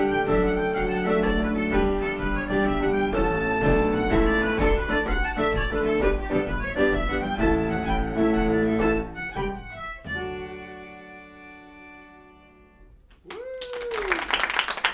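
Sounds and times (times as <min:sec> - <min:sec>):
fiddle: 0:00.0 - 0:12.8
concertina: 0:00.0 - 0:14.9
piano: 0:00.0 - 0:14.9
person whooping: 0:13.2 - 0:14.7.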